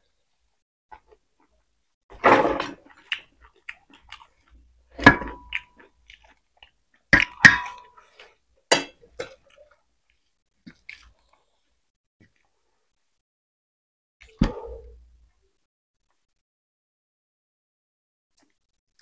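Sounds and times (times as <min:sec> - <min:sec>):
chewing and wet mouth noises: 0:02.8 - 0:04.8, 0:05.4 - 0:08.4, 0:09.2 - 0:12.5, 0:18.3 - 0:19.0.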